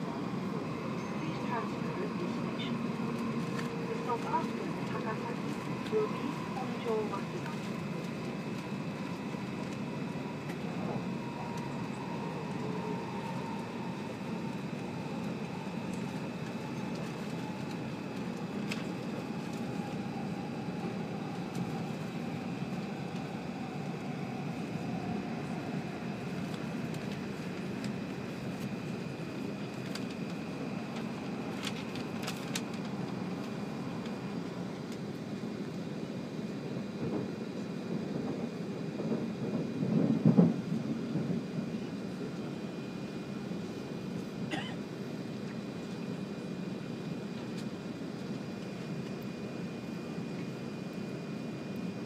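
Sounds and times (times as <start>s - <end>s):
faint high whine: 0.0s - 38.6s
train running noise inside car: 0.0s - 52.0s.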